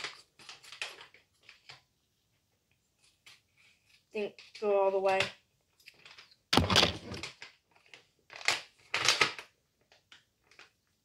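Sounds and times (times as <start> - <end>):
plastic bag crinkling: 0.0 - 1.8, 5.7 - 11.0.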